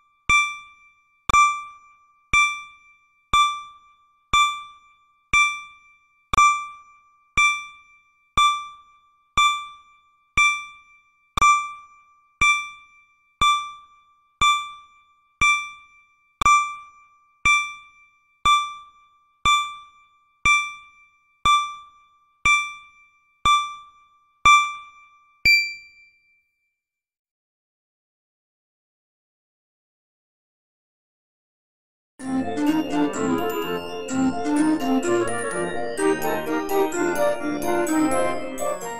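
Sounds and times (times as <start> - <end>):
timer beeps: 0.0 - 26.4.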